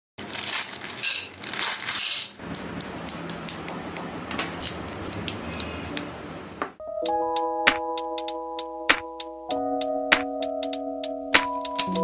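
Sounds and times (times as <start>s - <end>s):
plastic bricks rustling and clattering: 0.2s - 2.4s.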